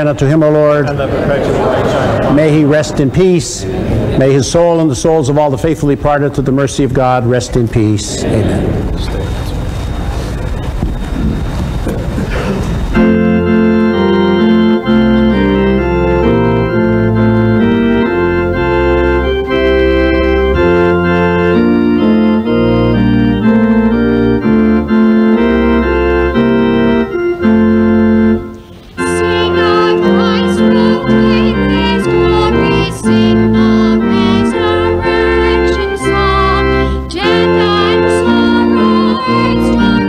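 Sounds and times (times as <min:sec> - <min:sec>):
church organ chords: 0:00.0 - 0:07.8, 0:08.6 - 0:40.0
person singing with wavering voice: 0:28.9 - 0:40.0.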